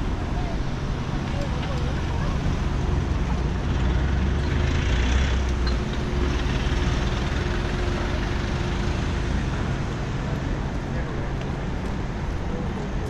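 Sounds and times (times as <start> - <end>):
large vehicle engine rumbling: 0.0 - 13.0.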